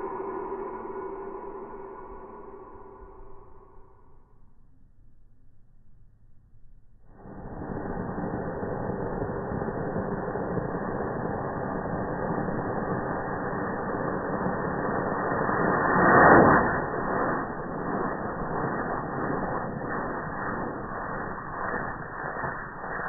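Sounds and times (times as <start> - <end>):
firework fountain hissing: 0.0 - 0.6, 7.1 - 23.0.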